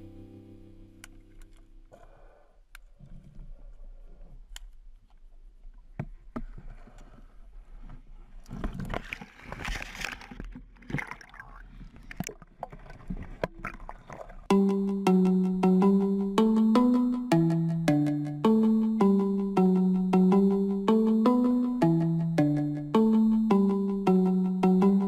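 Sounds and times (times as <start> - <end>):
water sloshing and gurgling: 8.5 - 14.5.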